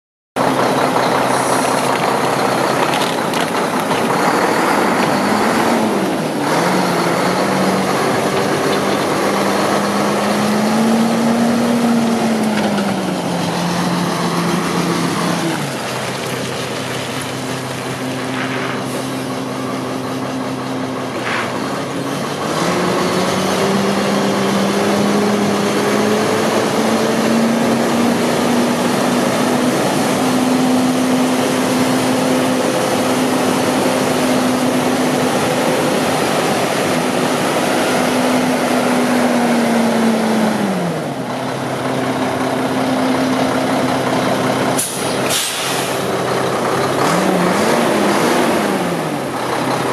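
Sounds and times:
diesel truck engine running: 0.4s - 49.9s
brief air hisses: 44.8s - 46.0s.

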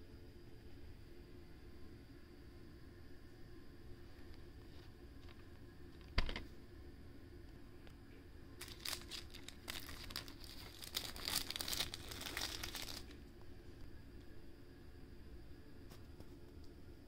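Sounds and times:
plastic wrapping crinkling: 8.6s - 13.2s.

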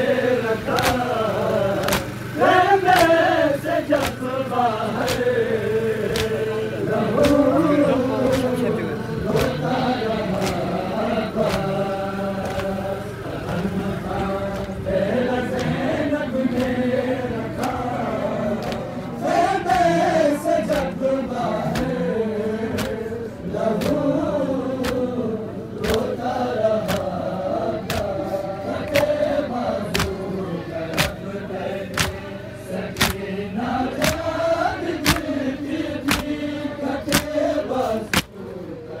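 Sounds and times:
men chanting in unison: 0.0s - 39.0s
hands slapping chests: 0.7s - 1.0s, 1.8s - 2.1s, 2.9s - 3.2s, 4.0s - 4.2s, 5.0s - 5.3s, 6.1s - 6.4s, 10.4s - 10.7s, 11.4s - 11.8s, 12.4s - 12.8s, 18.6s - 18.9s, 20.7s - 21.0s, 22.7s - 23.0s, 23.7s - 24.0s, 24.8s - 25.1s, 25.8s - 26.1s, 26.8s - 27.2s, 27.8s - 28.2s, 28.8s - 29.2s, 29.9s - 30.2s, 30.9s - 31.2s, 31.9s - 32.2s, 32.9s - 33.2s, 34.0s - 34.2s, 35.0s - 35.3s, 36.0s - 36.4s, 37.0s - 37.4s, 38.1s - 38.3s.

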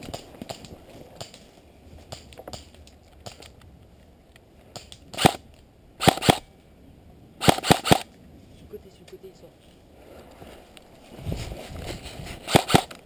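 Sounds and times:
airsoft rifle shots: 4.8s - 5.4s, 6.0s - 6.5s, 7.4s - 8.1s, 12.4s - 13.0s.

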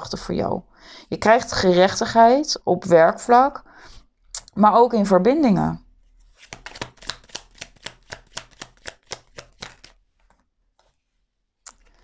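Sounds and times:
cards being shuffled by hand: 6.2s - 11.1s.

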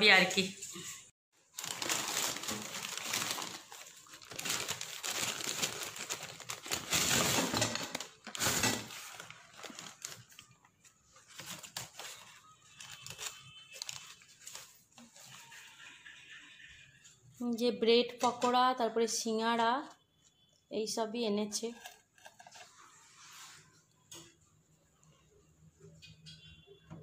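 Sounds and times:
newspaper rustling: 1.4s - 16.0s
plastic bag crinkling: 1.4s - 16.2s.

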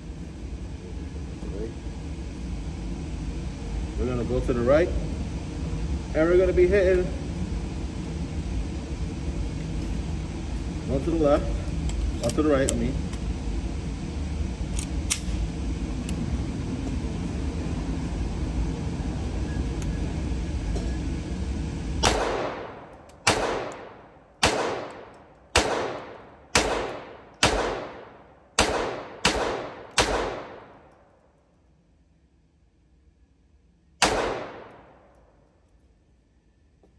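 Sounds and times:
low background rumble: 0.0s - 36.9s
handgun shots indoors: 22.0s - 31.2s, 34.0s - 35.5s.

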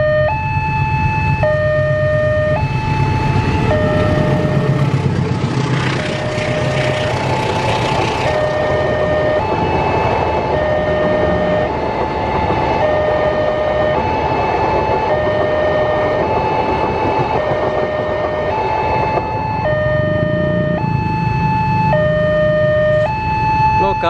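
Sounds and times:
ambulance siren two-tone: 0.0s - 5.1s, 5.8s - 24.0s
low engine rumble: 0.0s - 24.0s
train coaches rushing past: 2.8s - 19.4s.

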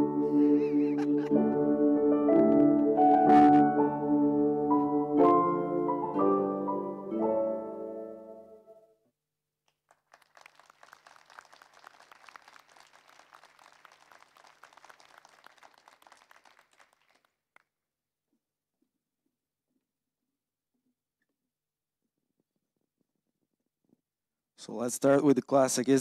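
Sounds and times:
audience clapping: 9.7s - 17.7s.

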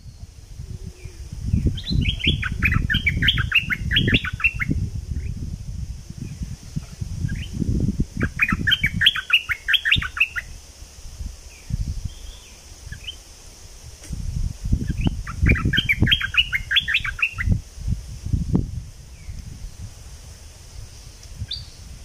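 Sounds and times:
bird chattering song: 1.0s - 5.4s, 6.8s - 7.6s, 8.2s - 10.6s, 11.6s - 13.2s, 14.8s - 17.6s.

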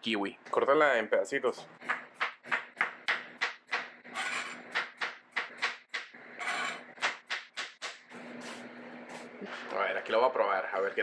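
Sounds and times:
knife chopping on cutting board: 1.8s - 8.0s.

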